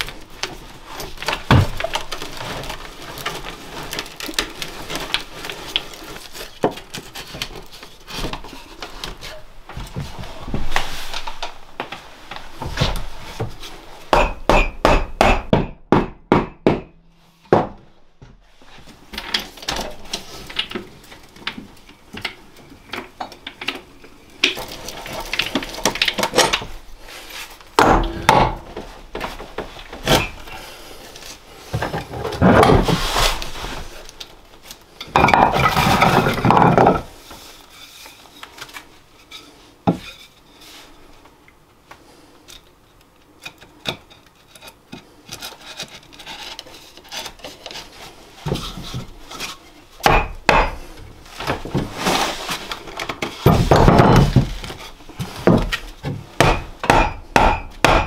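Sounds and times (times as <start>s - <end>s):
wood scraping: 0.0s - 14.0s, 23.0s - 41.2s, 43.6s - 50.0s, 50.7s - 56.7s.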